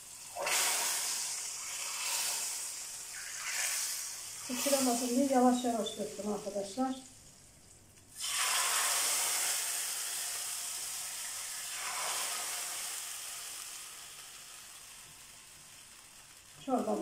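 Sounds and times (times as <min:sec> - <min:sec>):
hot oil sizzling on soup: 0:00.0 - 0:17.0.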